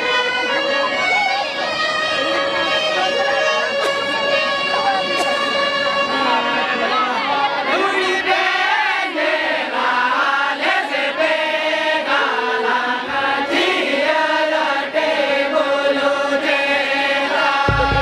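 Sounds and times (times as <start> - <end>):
keyboard instrument: 0.0 - 7.7, 17.5 - 18.0
violin: 0.0 - 7.8
men singing together: 7.8 - 18.0.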